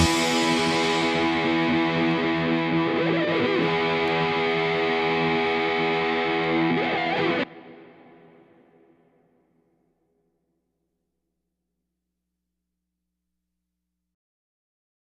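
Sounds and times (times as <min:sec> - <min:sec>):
distorted electric guitar: 0:00.0 - 0:09.0.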